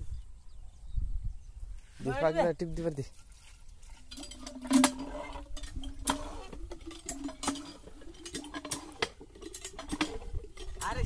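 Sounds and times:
hand pump metal clanks: 3.1s - 11.0s
water poured into pump: 3.2s - 11.0s.

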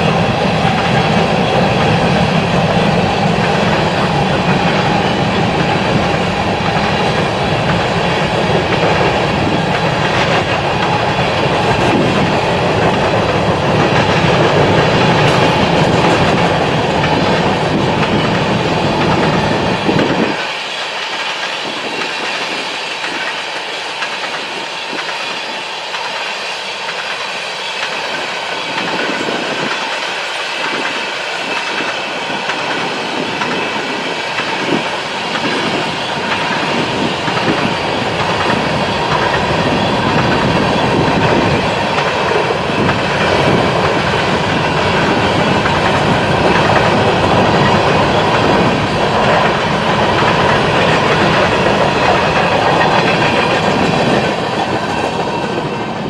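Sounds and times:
freight train rumble: 0.0s - 56.0s
wheels clacking over rail joints: 0.0s - 56.0s.

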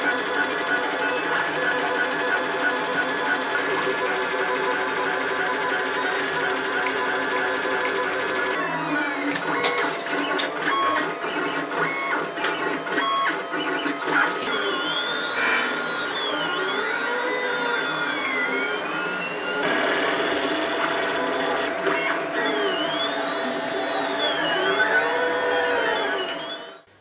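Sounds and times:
stepper motors whining: 0.0s - 26.9s
printer clicks: 9.3s - 10.7s.

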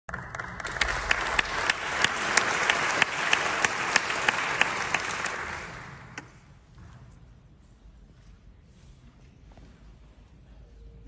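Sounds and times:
hands clapping close by: 0.1s - 6.3s
audience applauding: 0.1s - 6.4s.

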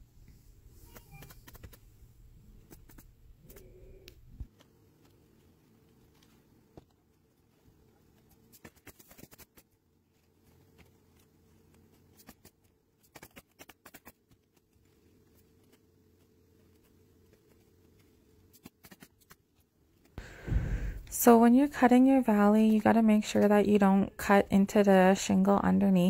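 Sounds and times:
faint small clicks and scratches: 0.8s - 1.8s, 2.6s - 20.2s.

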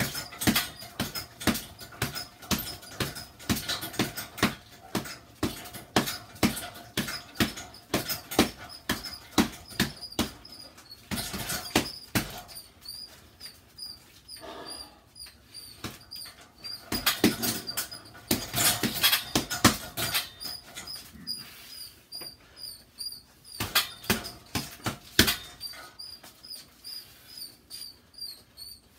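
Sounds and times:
gloves punching bag: 0.0s - 13.6s, 15.7s - 21.3s, 23.5s - 26.3s
faint high squeak: 7.2s - 24.7s, 25.3s - 28.9s.

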